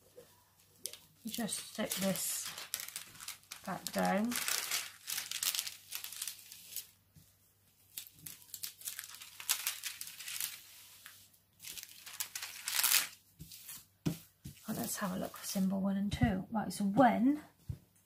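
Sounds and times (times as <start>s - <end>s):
plastic film crinkling: 0.8s - 7.0s, 7.7s - 13.9s.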